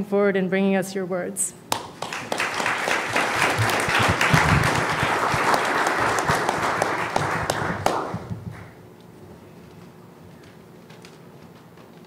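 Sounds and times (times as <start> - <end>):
audience applauding: 1.7 - 8.8.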